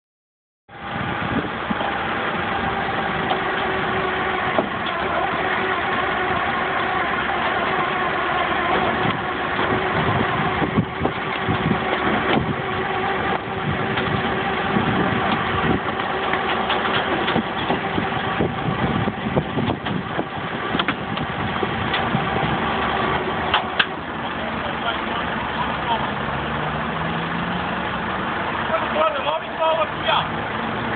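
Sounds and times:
vehicle engine idling: 0:00.7 - 0:30.9
knocks and clicks: 0:08.7 - 0:12.6, 0:15.2 - 0:18.3, 0:20.7 - 0:22.2.

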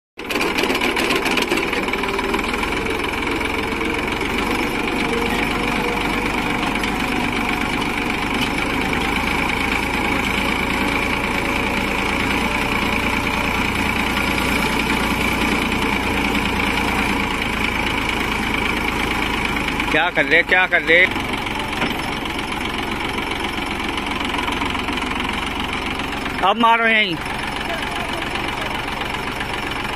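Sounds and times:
auger boring into soil: 0:00.2 - 0:19.2
tractor engine running: 0:00.2 - 0:29.9.

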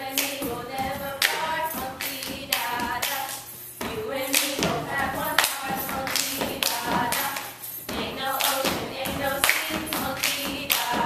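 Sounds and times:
voices chanting together: 0:00.0 - 0:11.0
people clapping: 0:00.1 - 0:00.4, 0:01.1 - 0:03.4, 0:05.3 - 0:07.5, 0:08.4 - 0:11.0.

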